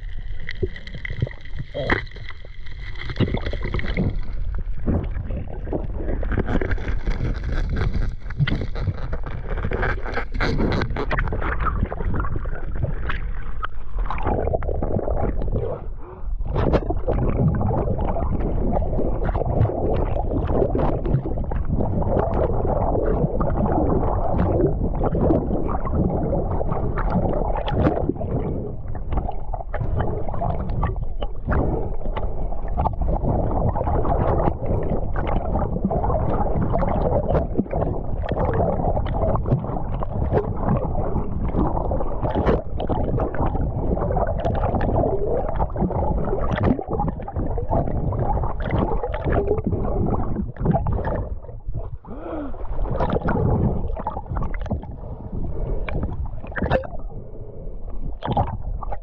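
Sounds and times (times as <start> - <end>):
muffled underwater water rush: 0.0 - 59.0.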